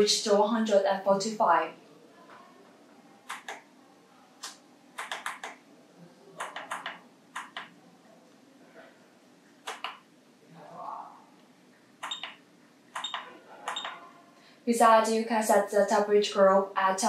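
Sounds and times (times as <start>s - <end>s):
push buttons clicking: 4.4s - 5.6s, 12.0s - 12.4s, 13.0s - 14.0s.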